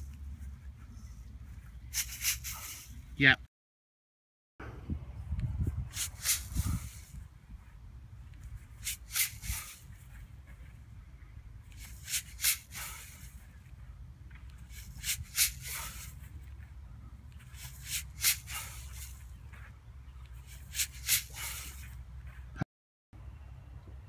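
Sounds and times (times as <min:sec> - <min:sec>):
swishing and rustling: 0:00.0 - 0:03.1, 0:05.6 - 0:10.8, 0:11.6 - 0:13.7.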